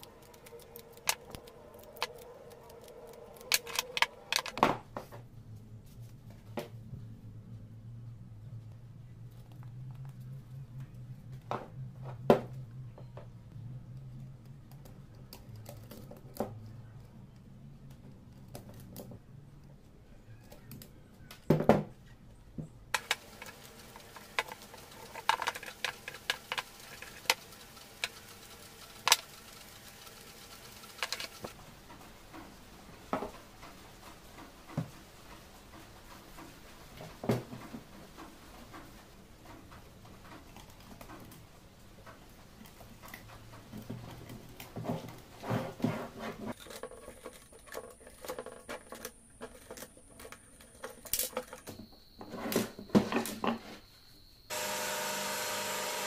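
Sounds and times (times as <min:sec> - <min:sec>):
faint low hum: 0:00.0 - 0:27.4.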